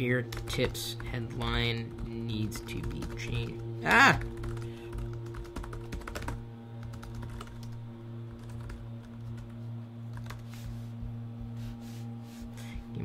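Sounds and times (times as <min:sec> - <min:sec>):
fan buzzing: 0:00.0 - 0:13.0
computer keyboard typing: 0:00.3 - 0:09.5, 0:10.1 - 0:10.4.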